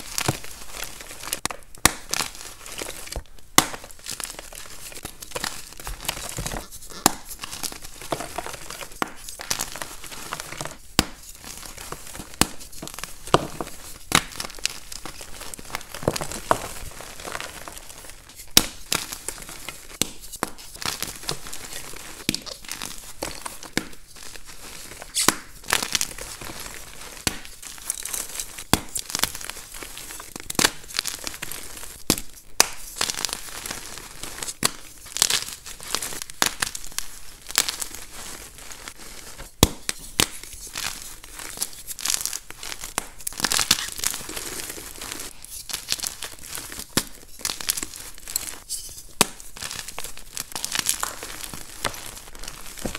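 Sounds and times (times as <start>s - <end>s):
chalk pieces cracking: 1.0s - 24.0s.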